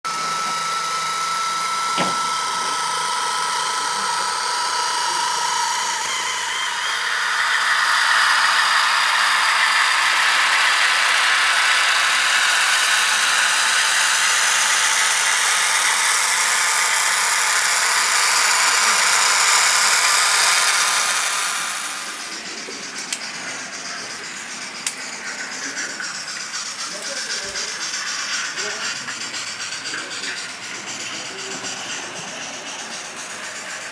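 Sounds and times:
model train motors whirring: 0:00.1 - 0:33.9
thin whine: 0:00.1 - 0:33.9.

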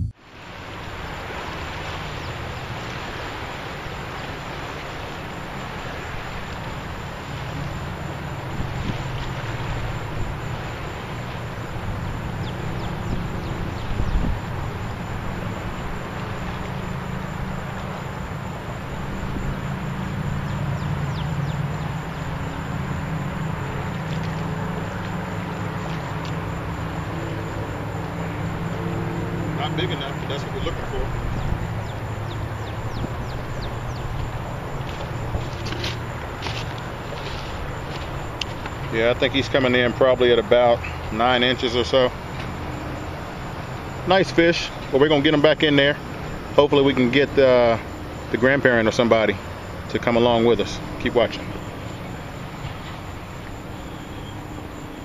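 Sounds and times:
wind rumble on microphone: 0:00.0 - 0:39.0
boat engine humming: 0:00.0 - 0:55.0.

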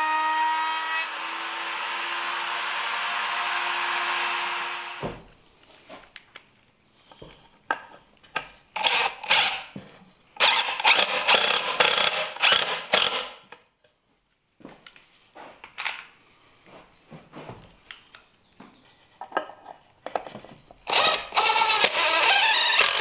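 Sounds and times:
cordless driver running screws: 0:20.9 - 0:23.0.

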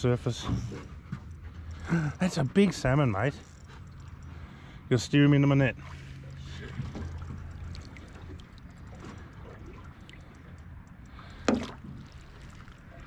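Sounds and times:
low steady hum: 0:00.0 - 0:13.0
water sloshing and trickling: 0:00.0 - 0:13.0
small splashes and drips: 0:05.4 - 0:13.0.

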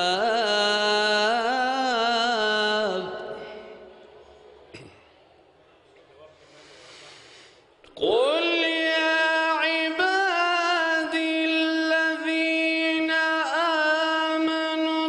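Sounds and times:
man reciting melodically: 0:00.0 - 0:04.2, 0:07.9 - 0:15.0.

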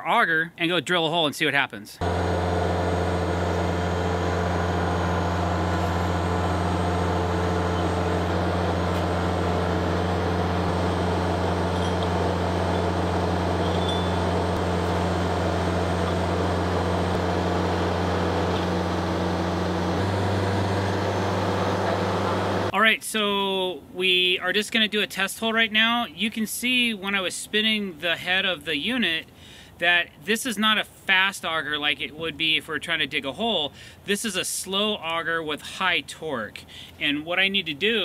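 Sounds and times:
diesel engine running: 0:02.0 - 0:22.7.

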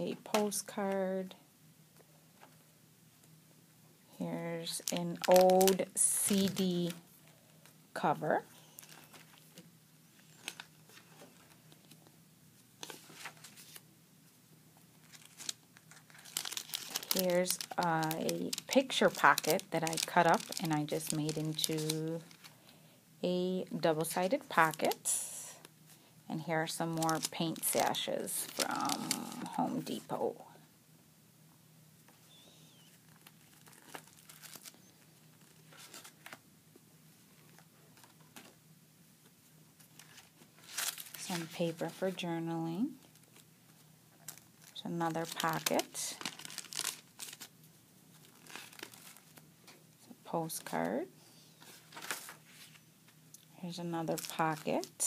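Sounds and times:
paper pages rustling: 0:08.6 - 0:12.0, 0:12.8 - 0:13.9, 0:15.0 - 0:22.6, 0:32.2 - 0:36.4, 0:37.4 - 0:38.6, 0:39.8 - 0:42.2, 0:43.1 - 0:47.5, 0:48.1 - 0:49.5, 0:51.6 - 0:53.2.

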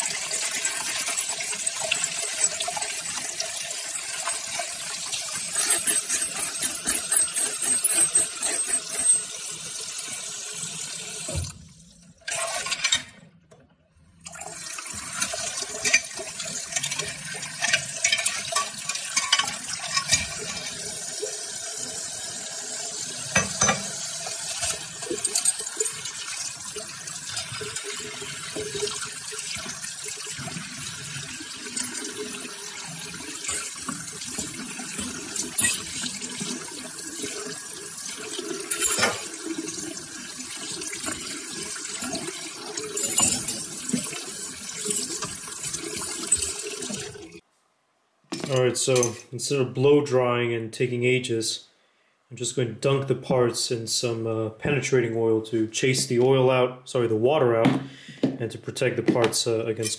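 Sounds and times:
tap water running into sink: 0:00.0 - 0:13.0, 0:14.2 - 0:47.4
metallic clinks of parts: 0:03.8 - 0:09.3, 0:43.0 - 0:43.7.

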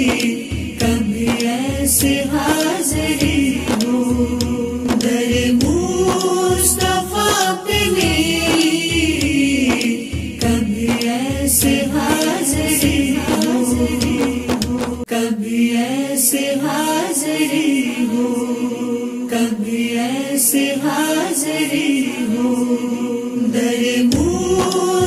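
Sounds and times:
low beat: 0:00.0 - 0:15.1, 0:24.1 - 0:25.0
person singing: 0:00.0 - 0:25.0.

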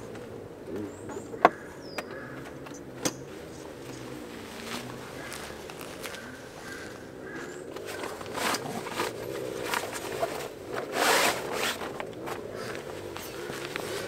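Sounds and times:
zipper rasping: 0:07.8 - 0:14.0.

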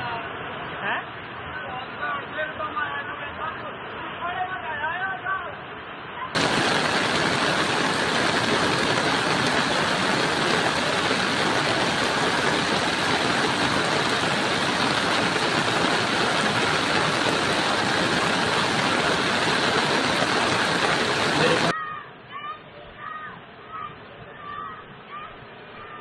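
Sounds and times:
flood water rushing: 0:06.4 - 0:21.7.

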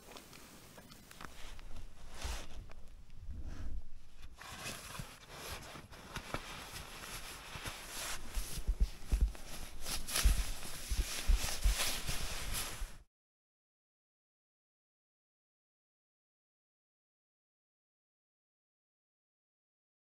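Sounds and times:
nylon gear rustling: 0:00.0 - 0:13.0.

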